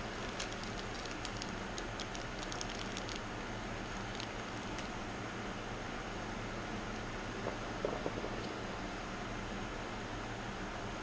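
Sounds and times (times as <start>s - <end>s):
plastic bags crinkling: 0.0s - 5.0s
small metal parts clicking: 0.0s - 5.0s
fan humming: 0.0s - 11.0s.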